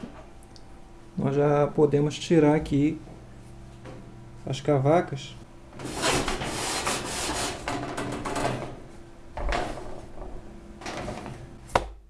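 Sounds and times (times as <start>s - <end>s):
baking trays scraping on rack: 5.8s - 8.7s.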